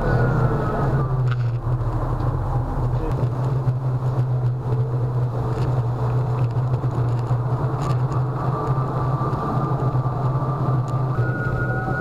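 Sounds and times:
electric unicycle wheel rumble: 0.0 - 12.0
faint high whine: 8.4 - 12.0.

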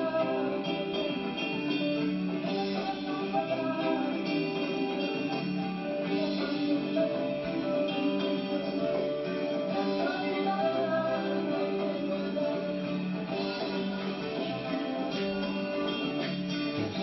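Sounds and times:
live band music with guitars: 0.0 - 17.0.

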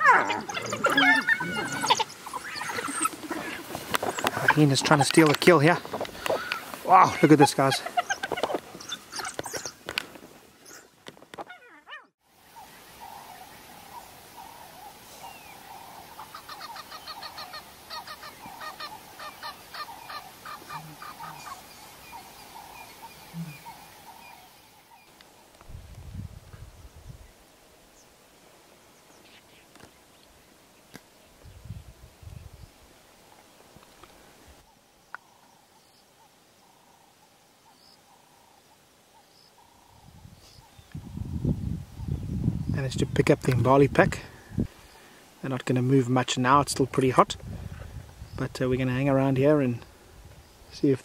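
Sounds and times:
animal honking calls: 0.0 - 3.6.

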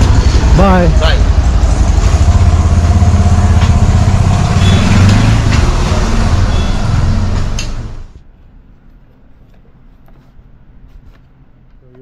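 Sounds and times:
small engine rumbling: 0.0 - 8.2
traffic and road noise: 0.0 - 12.0.

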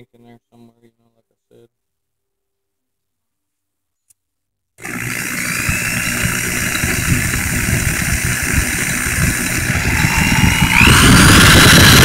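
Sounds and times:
electric drill running: 4.8 - 12.0.

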